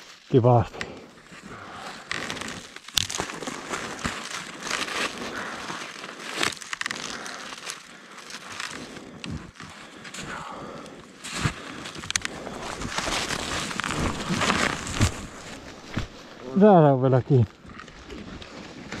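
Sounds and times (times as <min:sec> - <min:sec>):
dry snow crunching: 0:00.0 - 0:19.0
clothing rustling: 0:11.3 - 0:16.4.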